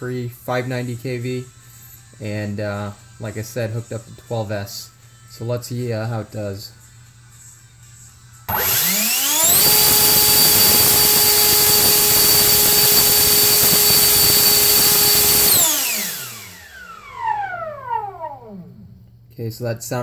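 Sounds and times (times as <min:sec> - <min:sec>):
electric ducted fan whine: 0:08.4 - 0:19.3.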